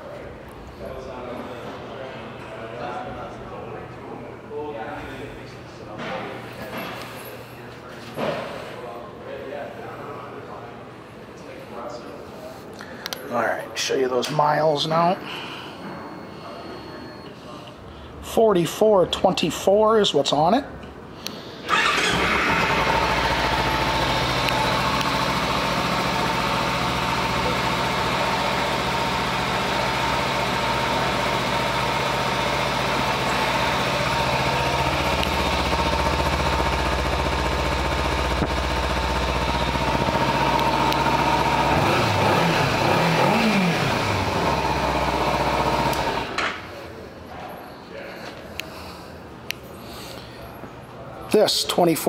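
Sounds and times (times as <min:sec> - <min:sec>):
motorcycle engine idling and revving: 0:21.7 - 0:46.4.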